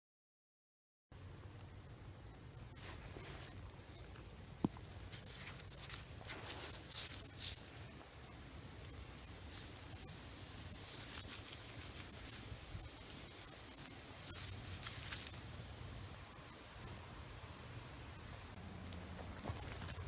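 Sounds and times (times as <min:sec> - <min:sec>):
hand scraping through soil: 0:02.7 - 0:15.5.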